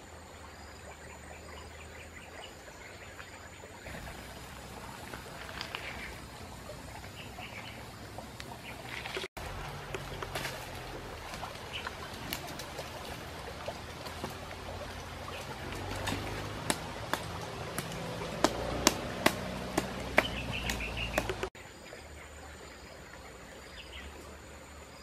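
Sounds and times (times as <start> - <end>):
bird chirping: 1.0 - 9.0, 20.1 - 21.5
campfire crackling and popping: 3.9 - 6.5, 15.4 - 21.5.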